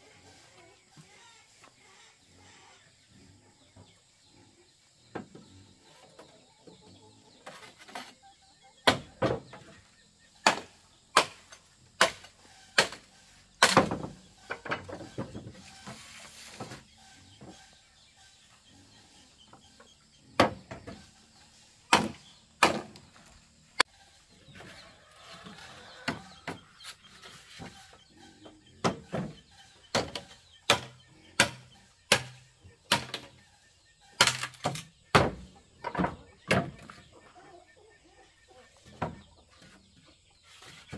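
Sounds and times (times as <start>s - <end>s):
machete chopping bamboo: 8.8s - 9.2s, 10.4s - 14.1s, 21.9s - 23.1s, 29.9s - 33.3s, 34.1s - 35.5s.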